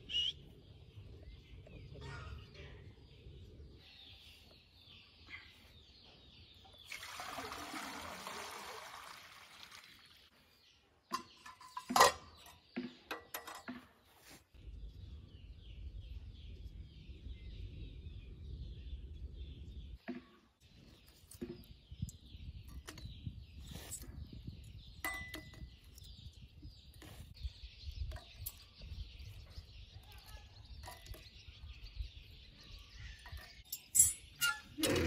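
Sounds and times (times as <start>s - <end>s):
birds chirping: 0.0s - 35.0s
water being poured: 6.8s - 10.3s
metal lid clinks: 25.0s - 25.6s, 33.7s - 35.0s.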